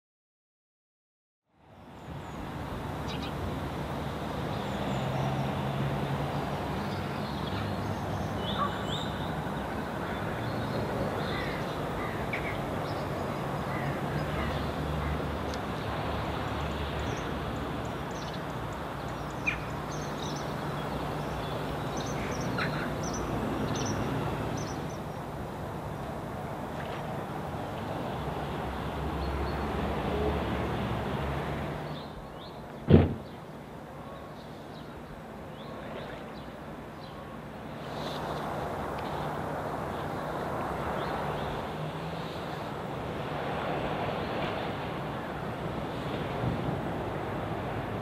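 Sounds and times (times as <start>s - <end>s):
birds calling: 6.8s - 25.3s.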